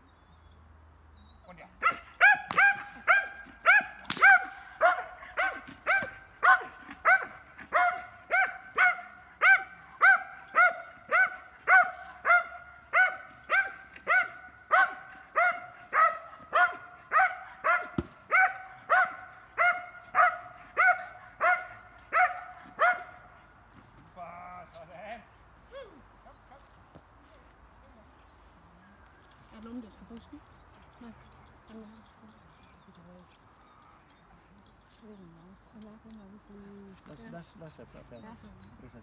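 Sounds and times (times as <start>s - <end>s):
dog barking: 1.8s - 23.2s.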